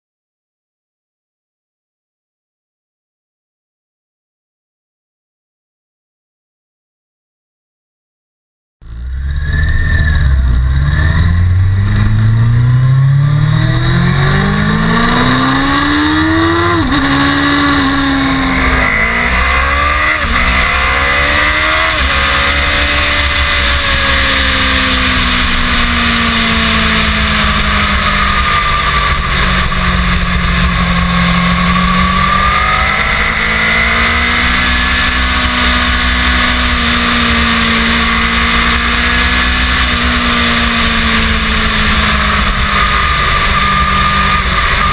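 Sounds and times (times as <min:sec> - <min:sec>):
motorcycle engine accelerating: 0:08.8 - 0:44.9
wind noise rushing: 0:11.1 - 0:44.9.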